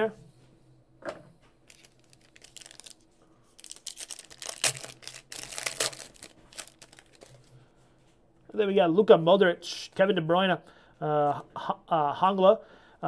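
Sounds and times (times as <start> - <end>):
foil wrapper tearing and crinkling: 1.7 - 3.0, 3.6 - 7.4.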